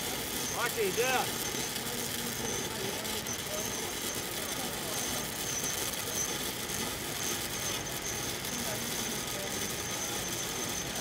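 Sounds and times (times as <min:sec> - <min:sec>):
welding arc crackling and hissing: 0:00.0 - 0:11.0.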